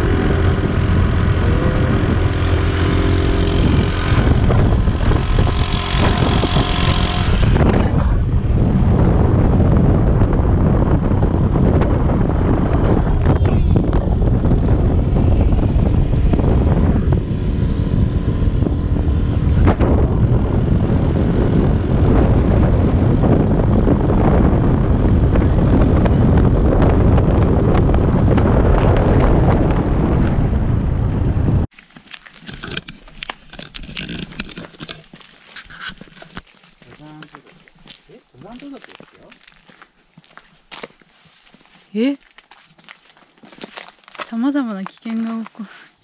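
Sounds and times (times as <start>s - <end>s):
scooter engine running: 0.0s - 31.4s
wind rushing over microphone: 0.0s - 31.7s
footsteps on concrete: 31.7s - 45.9s.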